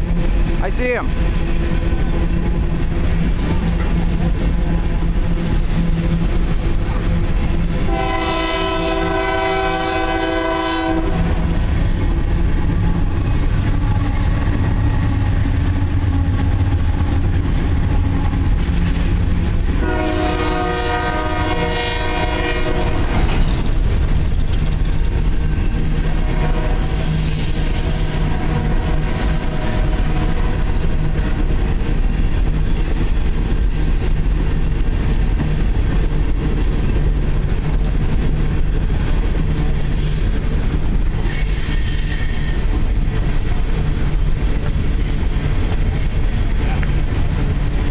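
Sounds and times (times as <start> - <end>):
locomotive horn blasts: 7.8 - 11.4, 19.8 - 23.3, 26.1 - 27.1, 27.8 - 30.6.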